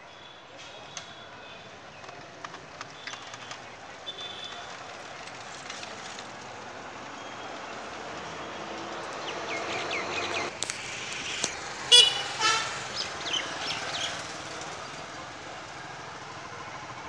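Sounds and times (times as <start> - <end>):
street traffic hum: 0.0 - 17.0
vehicle horn toot: 4.1 - 4.7, 11.9 - 13.0.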